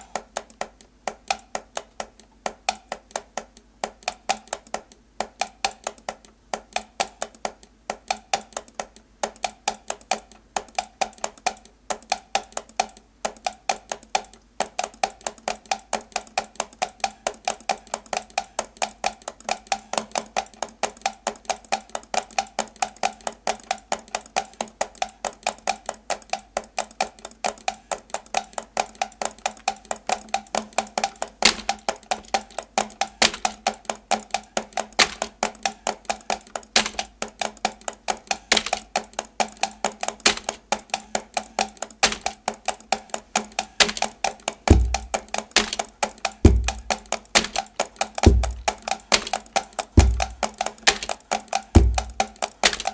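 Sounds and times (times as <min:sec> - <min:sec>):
computer keys clacking: 0:00.0 - 0:52.9.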